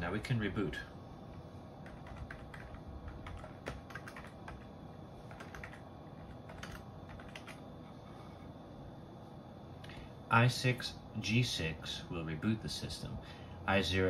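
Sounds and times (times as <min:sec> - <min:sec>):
steady low hum: 0:00.0 - 0:14.0
keyboard keystrokes: 0:01.8 - 0:04.6, 0:05.3 - 0:05.8, 0:06.5 - 0:07.6.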